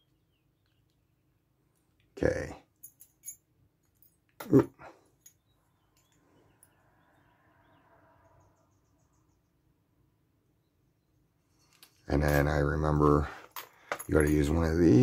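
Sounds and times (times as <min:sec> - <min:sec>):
metal tools clicking: 0:02.8 - 0:04.6.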